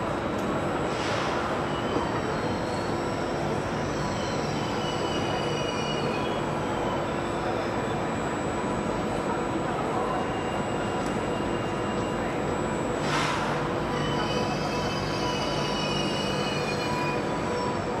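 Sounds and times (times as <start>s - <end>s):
faint wavering squeal: 1.6s - 8.6s, 13.8s - 18.0s.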